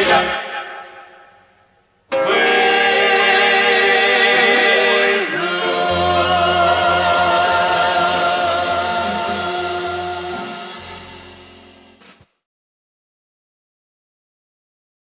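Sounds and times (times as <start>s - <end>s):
choir singing with vibrato: 0.0s - 11.6s.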